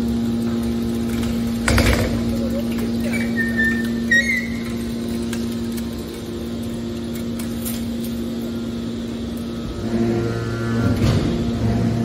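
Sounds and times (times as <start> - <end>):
hydraulic baler humming: 0.0 - 12.0
high squeal: 3.1 - 4.8.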